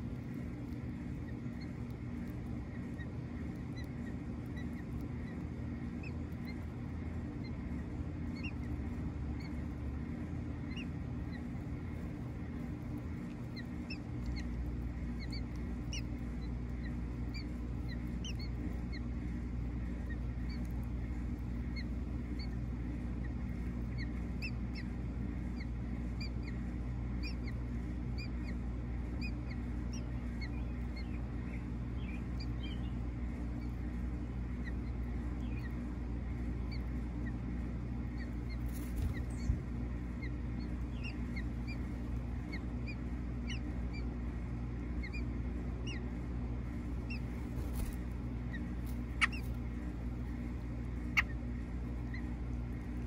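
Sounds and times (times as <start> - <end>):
steady low hum: 0.0 - 53.0
high bird chirps: 40.2 - 44.1, 47.0 - 49.6.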